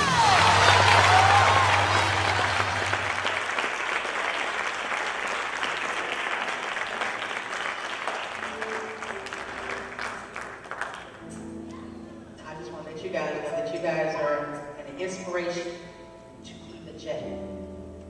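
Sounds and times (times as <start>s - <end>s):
audience applauding: 0.0s - 11.3s
faint sustained musical notes: 8.4s - 18.0s.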